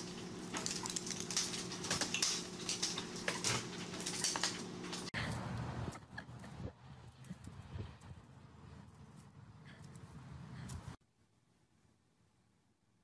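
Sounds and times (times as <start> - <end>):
dog scrambling: 0.0 - 5.1
steady low hum: 0.0 - 11.0.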